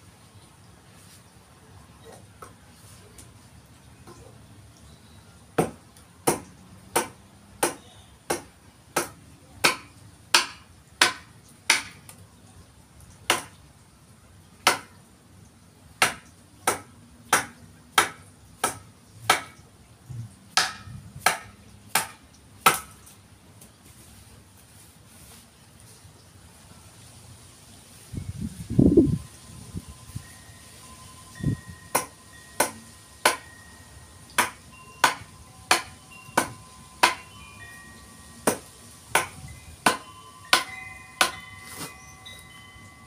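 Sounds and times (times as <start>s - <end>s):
hand tool chopping into log: 31.9s - 33.4s, 34.4s - 37.3s, 38.4s - 41.9s.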